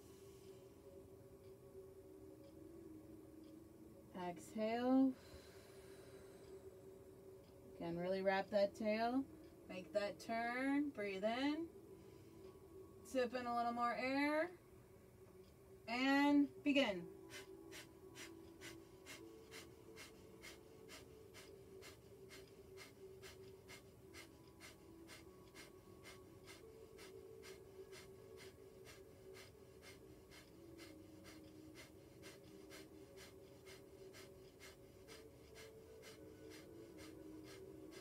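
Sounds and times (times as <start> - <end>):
rapid forced nasal exhalations: 17.3 - 38.0.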